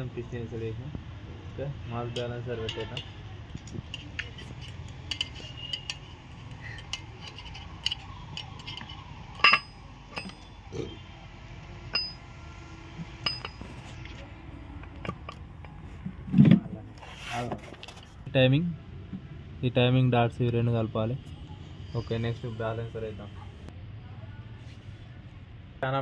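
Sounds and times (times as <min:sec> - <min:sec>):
metal parts clinking: 0:03.6 - 0:10.6, 0:13.2 - 0:13.8.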